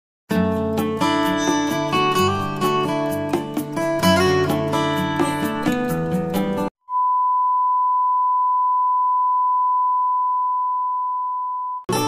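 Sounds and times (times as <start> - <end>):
acoustic guitar music: 0.3 - 6.7.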